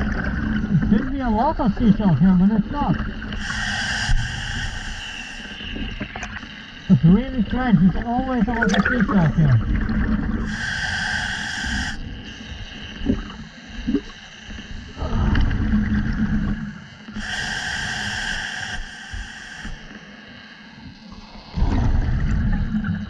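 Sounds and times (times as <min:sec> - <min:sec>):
exhaled bubbles rumbling: 0:00.0 - 0:11.2, 0:11.8 - 0:17.3, 0:21.2 - 0:23.0
regulator inhalation hiss: 0:03.3 - 0:06.0, 0:10.4 - 0:13.0, 0:17.1 - 0:20.4.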